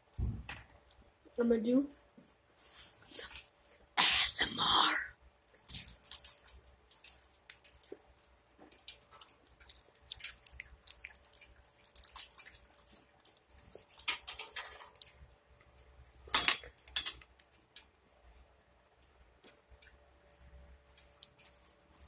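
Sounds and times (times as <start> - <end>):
crunchy biting and chewing: 5.5 - 15.2.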